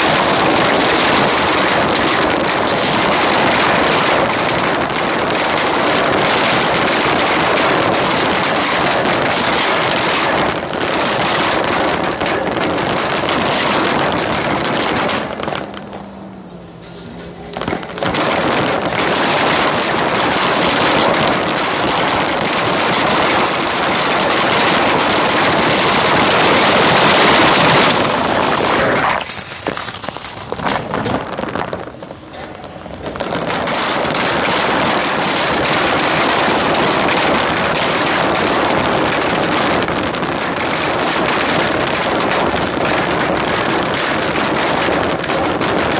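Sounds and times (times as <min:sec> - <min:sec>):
shopping cart rattling on asphalt: 0:00.0 - 0:45.9.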